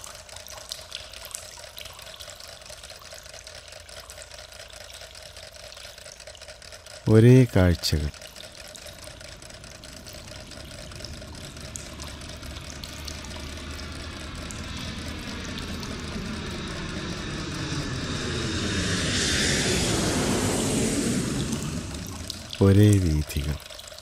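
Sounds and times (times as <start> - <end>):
distant city traffic: 6.9 - 23.7
sweeping phasing tone: 8.7 - 22.7.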